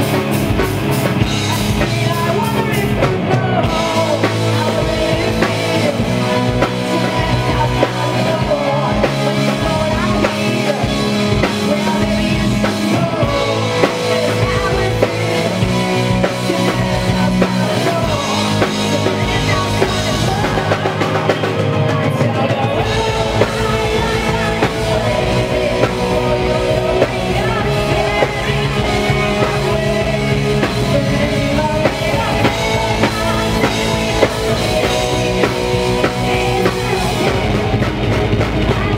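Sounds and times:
metal band playing live: 0:00.0 - 0:38.9.

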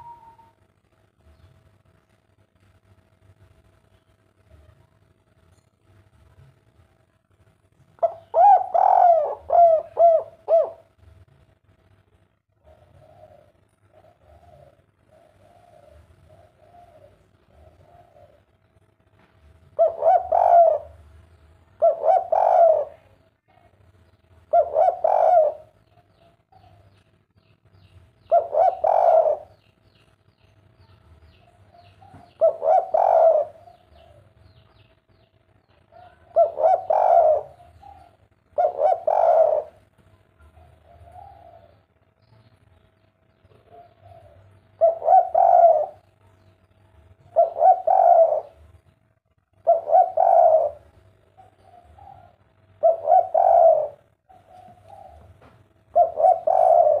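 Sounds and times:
dove cooing: 0:00.0 - 0:00.7, 0:08.0 - 0:11.1, 0:12.5 - 0:18.6, 0:19.6 - 0:23.8, 0:24.5 - 0:26.9, 0:28.2 - 0:30.0, 0:31.4 - 0:34.6, 0:35.8 - 0:41.9, 0:43.5 - 0:46.3, 0:47.2 - 0:48.8, 0:49.5 - 0:57.0.

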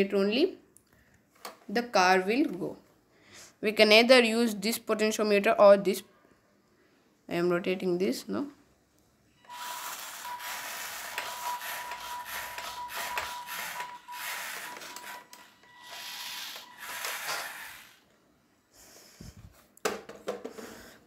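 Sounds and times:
small gear motors whirring: 0:09.5 - 0:18.1.

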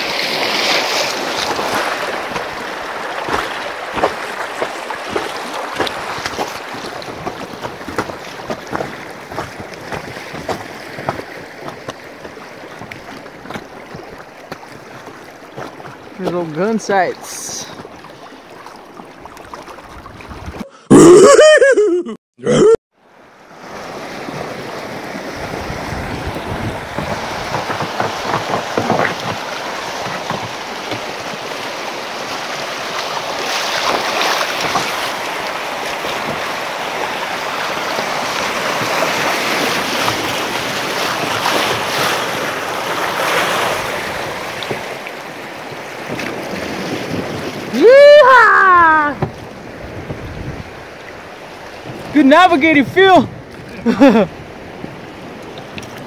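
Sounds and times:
water rushing through rapids: 0:00.0 - 0:20.4, 0:23.5 - 0:56.0
wind on microphone: 0:25.1 - 0:29.3, 0:46.2 - 0:50.9.

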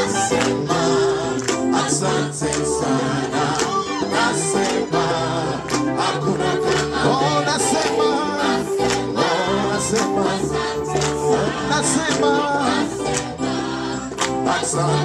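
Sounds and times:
gospel choir singing: 0:00.0 - 0:15.0.

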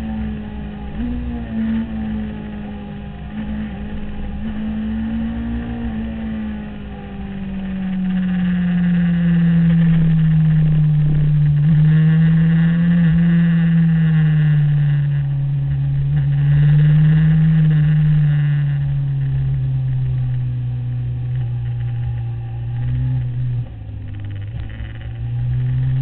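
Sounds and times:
motorcycle engine at speed: 0:00.0 - 0:26.0.

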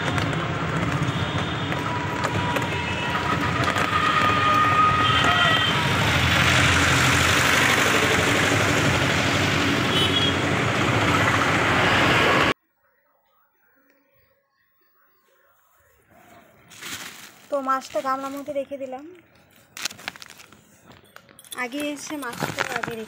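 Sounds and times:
road noise rushing rumble: 0:00.0 - 0:12.6.

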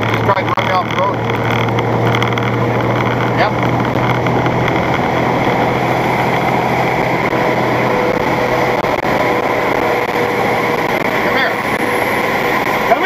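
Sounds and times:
truck cab road and engine noise: 0:00.0 - 0:13.0.

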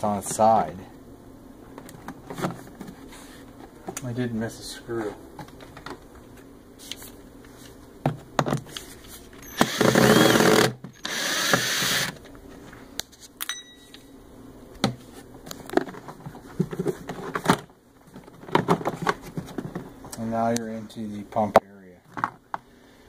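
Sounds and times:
cordless drill running: 0:09.4 - 0:12.2
clicks and knocks of plastic housing: 0:15.7 - 0:19.9.

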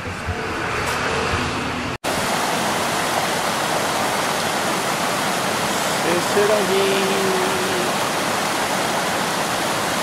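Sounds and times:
river water rushing over weir: 0:02.0 - 0:10.0.

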